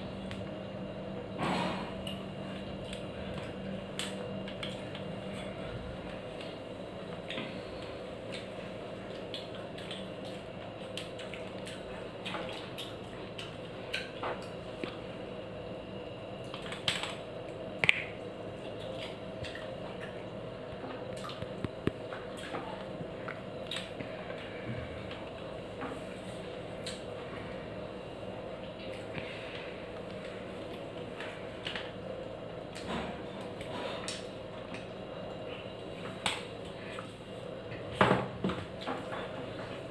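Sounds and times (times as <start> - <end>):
faint steady hum: 0.0 - 39.9
wet mixing and chewing: 1.8 - 15.4, 16.0 - 37.9.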